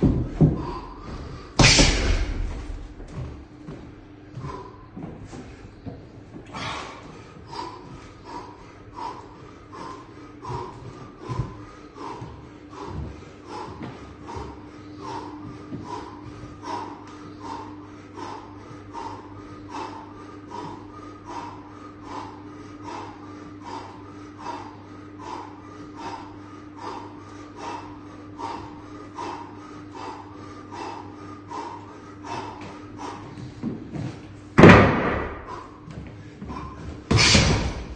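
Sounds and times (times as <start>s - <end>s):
low hum: 0.0s - 23.1s
man breathing hard: 0.0s - 37.9s.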